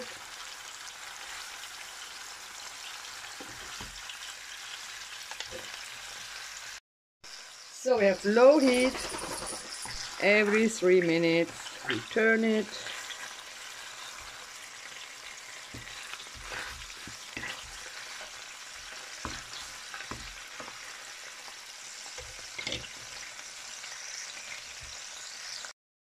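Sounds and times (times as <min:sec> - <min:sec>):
food sizzling in oil: 0:00.0 - 0:25.8
wooden spatulas knocking and scraping: 0:15.7 - 0:20.8.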